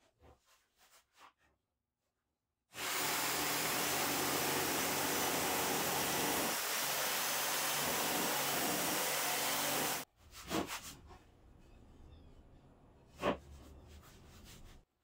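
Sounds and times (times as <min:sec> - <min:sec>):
jigsaw cutting wood: 0:02.8 - 0:10.0.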